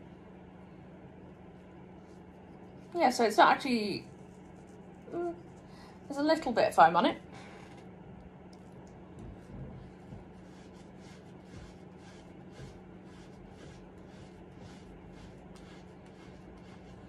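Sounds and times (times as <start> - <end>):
steady low hum: 0.0 - 17.0
cloth rubbing on skin: 2.0 - 6.4, 9.8 - 17.0.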